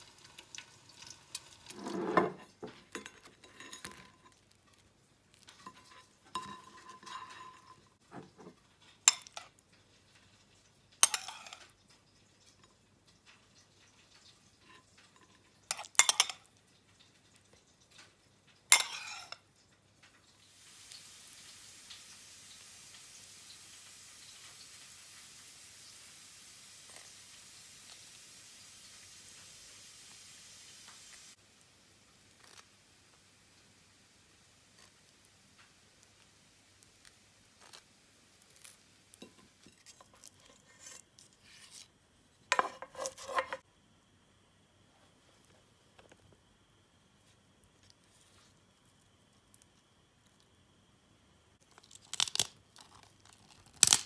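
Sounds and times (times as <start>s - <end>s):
faint steady hiss: 0.0s - 54.0s
cookware clattering: 1.0s - 4.4s, 5.6s - 9.5s, 11.0s - 11.7s, 14.7s - 16.5s, 18.7s - 19.4s, 42.5s - 43.6s
spatula scraping pan and plate: 1.6s - 4.4s, 18.8s - 19.4s, 42.5s - 43.6s
knife scraping ceramic: 1.6s - 4.5s, 5.6s - 7.8s, 11.0s - 11.6s, 18.8s - 19.4s, 39.2s - 41.9s, 42.5s - 43.6s.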